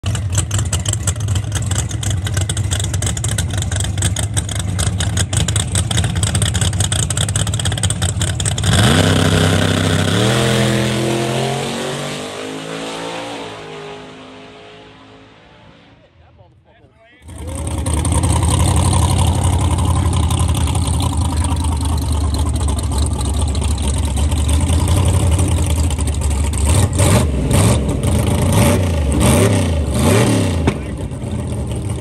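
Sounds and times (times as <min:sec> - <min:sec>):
drag car engine crackling and launching: 0:17.2 - 0:32.0.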